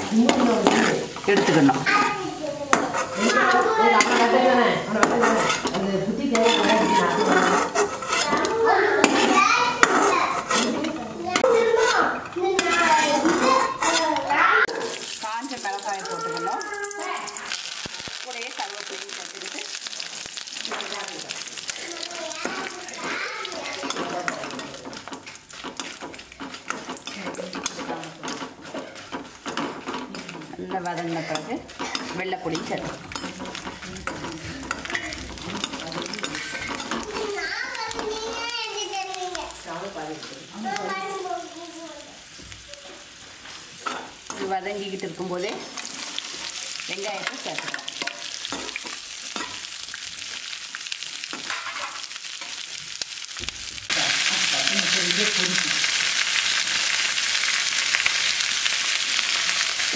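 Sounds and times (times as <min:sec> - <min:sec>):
metal ladle scraping pan: 0:00.0 - 0:16.4, 0:22.4 - 0:38.4, 0:43.0 - 0:50.5, 0:51.2 - 0:52.7
food sizzling in hot oil: 0:00.0 - 0:59.9.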